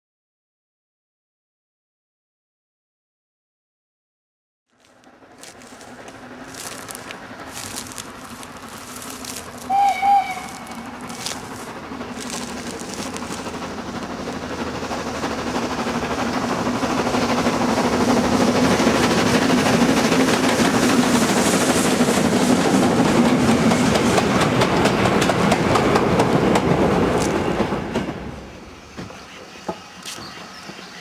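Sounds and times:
steam train passing: 4.8s - 31.0s
wheels clattering over rail joints: 4.9s - 28.4s.

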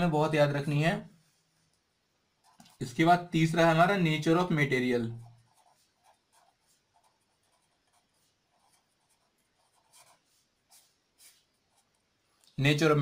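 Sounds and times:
pen scratching on paper: 2.4s - 3.1s, 5.1s - 12.2s.

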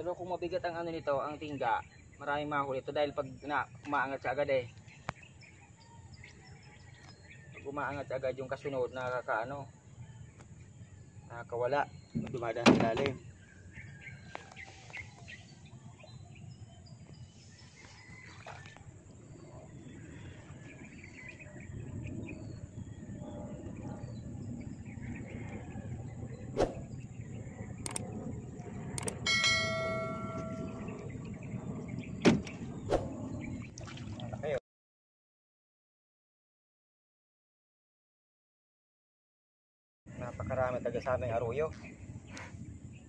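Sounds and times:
faint bird chirps: 0.1s - 28.3s
knocks against wooden boat: 12.2s - 13.2s
bell-like ringing tone: 29.2s - 30.9s.

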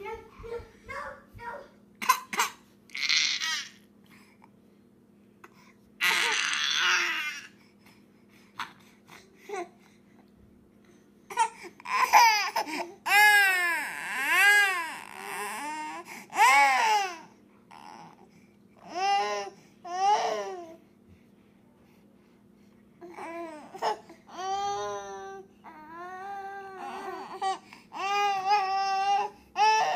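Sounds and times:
steady low hum: 0.0s - 29.9s
baby crying: 2.9s - 3.8s, 6.0s - 7.6s, 11.3s - 18.2s, 23.0s - 29.9s.

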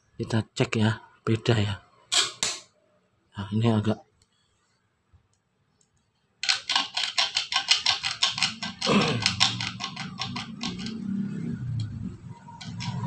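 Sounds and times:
contact breaker clicking chatter: 6.4s - 11.1s.

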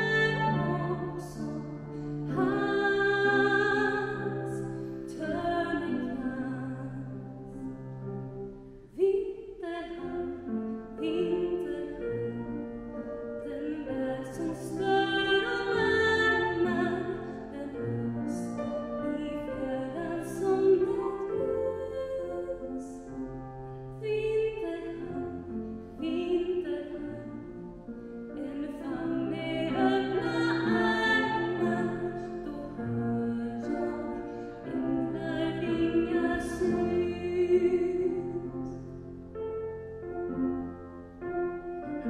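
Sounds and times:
woman singing slow song: 0.0s - 1.7s, 2.3s - 7.3s, 9.0s - 12.7s, 13.4s - 23.2s, 26.0s - 27.4s, 28.4s - 38.7s.

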